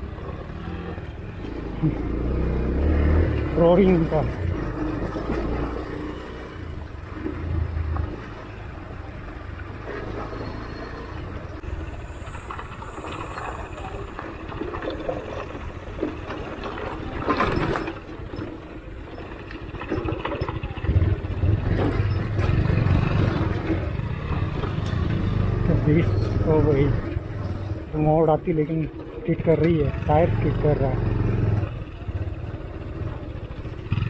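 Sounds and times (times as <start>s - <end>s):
motorcycle engine at low revs: 0.0s - 34.0s.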